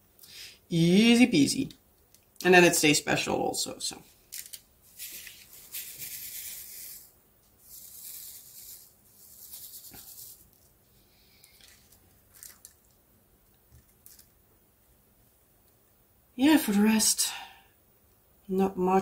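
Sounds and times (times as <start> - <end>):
beads rattling in plastic tray: 4.3 - 10.7, 11.5 - 12.9.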